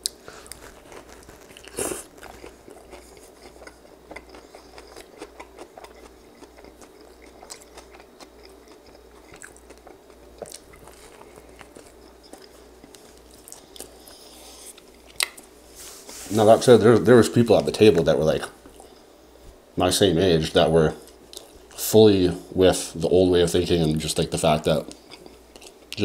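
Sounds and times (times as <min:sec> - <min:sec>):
food crunch: 0:00.0 - 0:15.5
person chewing food: 0:00.0 - 0:15.6, 0:21.0 - 0:21.8, 0:24.9 - 0:26.0.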